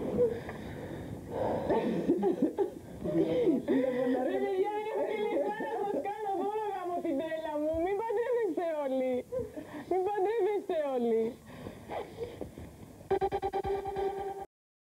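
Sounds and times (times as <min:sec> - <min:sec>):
woman crying: 0:01.7 - 0:06.9, 0:07.9 - 0:12.4.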